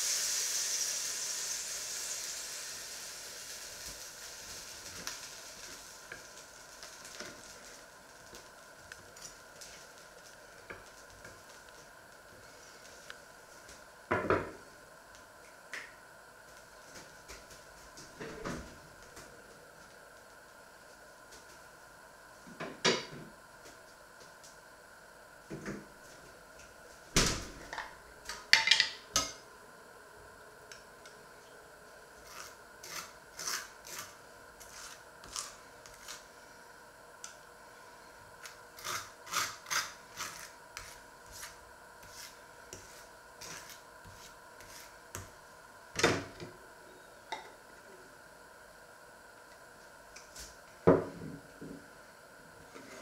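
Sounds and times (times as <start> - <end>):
knife scraping a jar: 32.2 - 36.2, 38.8 - 44.9
knife smearing spread on bread: 32.2 - 36.3, 38.4 - 45.3.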